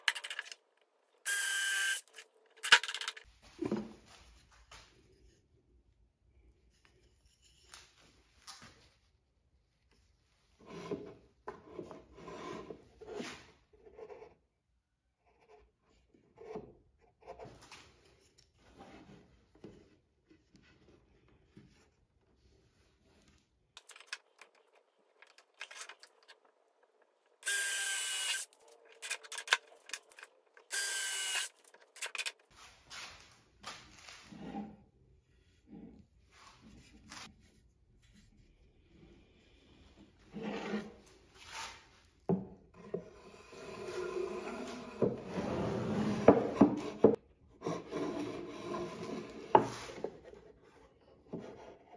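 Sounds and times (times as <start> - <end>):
drill driving screws into wood: 27.4 - 28.5, 30.7 - 32.2.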